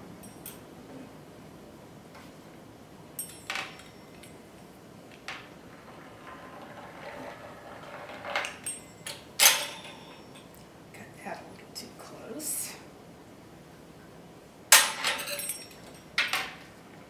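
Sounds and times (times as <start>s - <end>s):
soft scraping: 5.7s - 8.4s.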